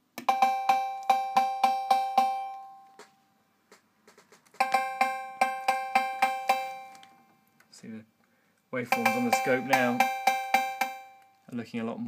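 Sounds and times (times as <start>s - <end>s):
electronic cowbell rhythm: 0.2s - 2.9s, 4.6s - 7.0s, 8.8s - 11.2s.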